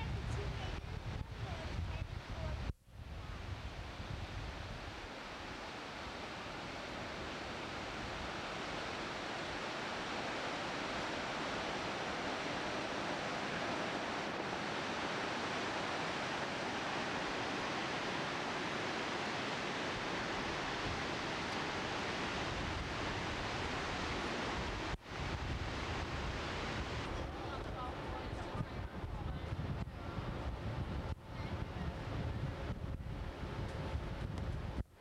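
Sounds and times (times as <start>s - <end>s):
waterfall rushing: 5.0s - 28.5s.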